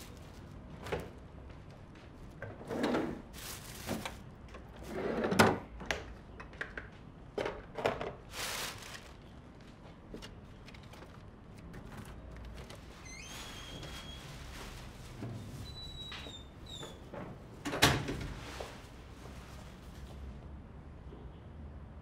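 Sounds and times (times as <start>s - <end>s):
plastic bags rustling: 0.0s - 0.8s, 3.1s - 4.8s, 8.2s - 15.5s.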